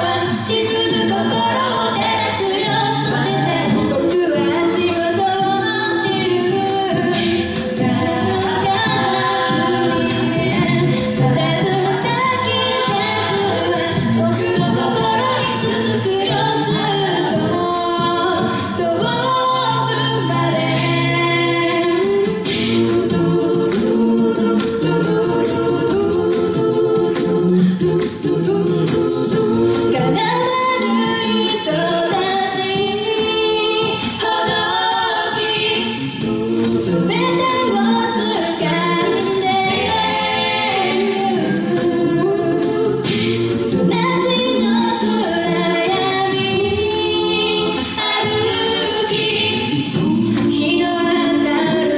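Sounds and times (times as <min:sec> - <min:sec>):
sung backing harmonies: 0:00.0 - 0:51.9
vocal percussion beat: 0:00.0 - 0:51.9.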